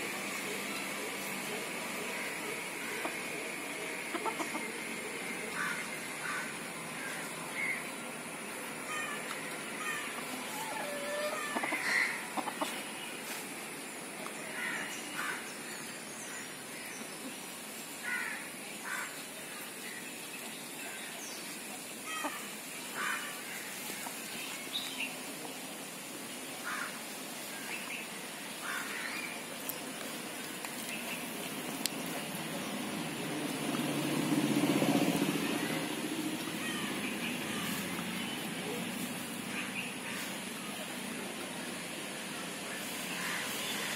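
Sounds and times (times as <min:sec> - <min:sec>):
high-pitched hiss: 0:00.0 - 0:43.9.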